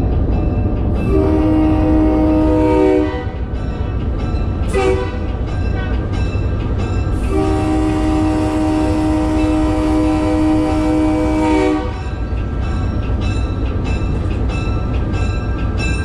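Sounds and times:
locomotive engine rumbling: 0.0 - 16.0
locomotive air horn blasts: 1.1 - 3.5, 4.7 - 5.3, 7.2 - 12.0.

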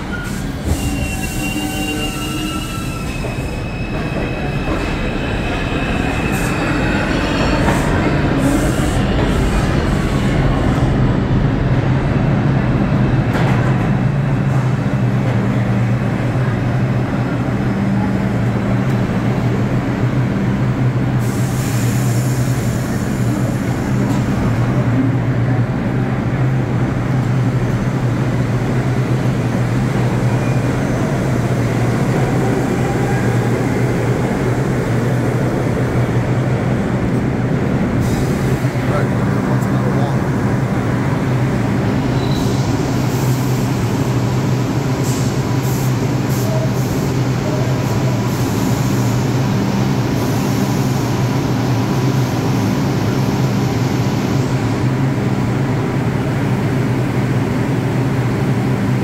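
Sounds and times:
subway train rumble: 0.0 - 59.0
hiss: 21.2 - 23.5.

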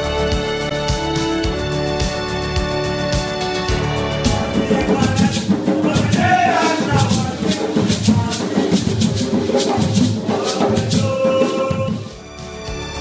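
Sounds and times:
hand drums playing rhythm: 4.1 - 12.2
voices singing along: 4.3 - 8.8, 10.0 - 12.2
hand shaker rattling: 4.3 - 12.2.

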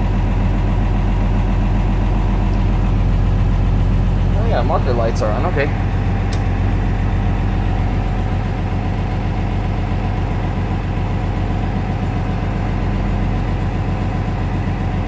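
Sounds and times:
bus engine running: 0.0 - 15.0
toggle switch click: 6.3 - 6.5.

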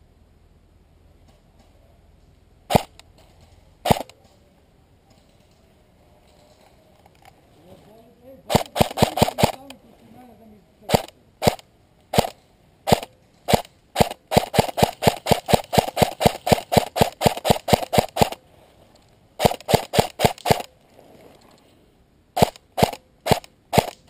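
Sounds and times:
airsoft rifle shots: 2.7 - 3.1, 3.8 - 4.2, 8.5 - 9.8, 10.9 - 18.4, 19.4 - 20.8, 22.4 - 24.0.

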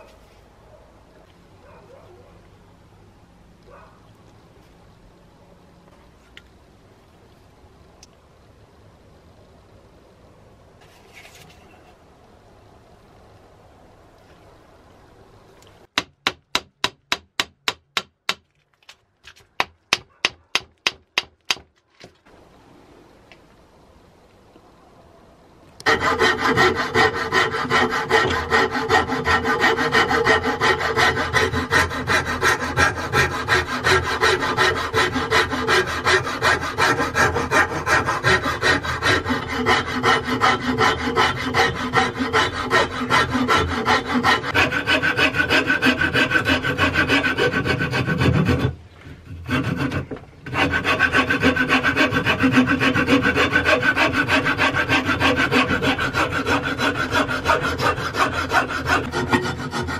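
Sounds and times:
file rasping wood: 25.8 - 59.9.

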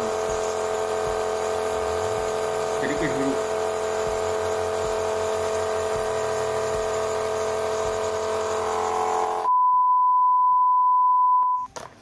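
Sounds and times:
nebulizer compressor humming and hissing: 0.0 - 9.5
steady electronic beep tone: 5.6 - 11.7.

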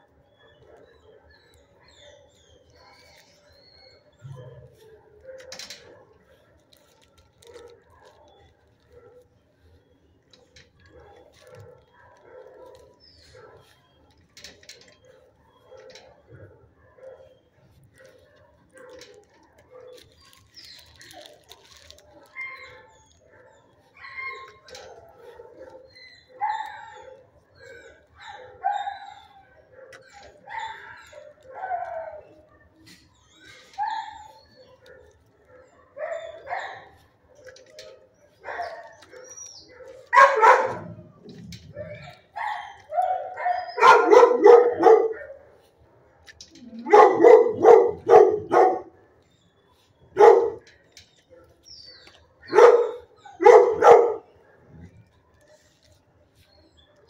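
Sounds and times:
dogs barking: 0.0 - 57.0.

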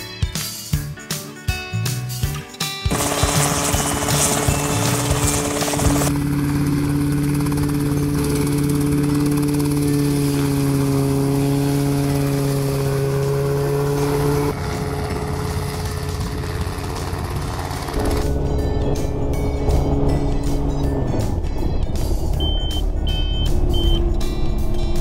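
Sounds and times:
helicopter engine and rotor drone: 2.9 - 25.0
rotor wash noise: 10.0 - 21.4.

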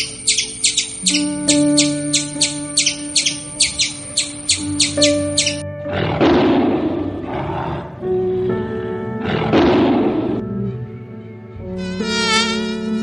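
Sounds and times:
background music with held notes: 0.0 - 13.0
large animal roaring: 5.8 - 10.5.

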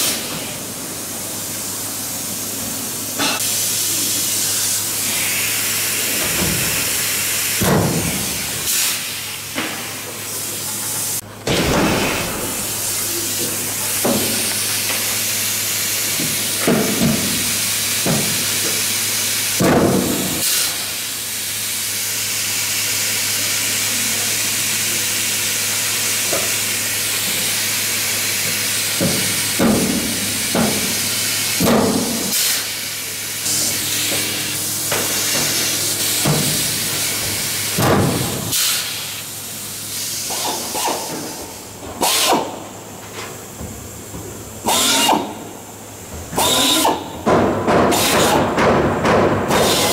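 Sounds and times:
air hose hissing: 3.2 - 9.2, 25.9 - 42.6
pneumatic tool bursts: 13.8 - 21.0, 25.6 - 39.3, 39.9 - 42.7, 44.6 - 45.5, 46.3 - 47.2, 47.9 - 48.6, 49.5 - 49.9.

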